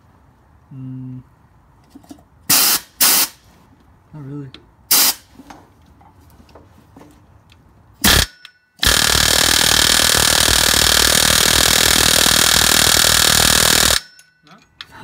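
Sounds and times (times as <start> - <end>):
pneumatic air hammer hammering: 2.5 - 3.4, 4.9 - 5.3, 8.0 - 14.4.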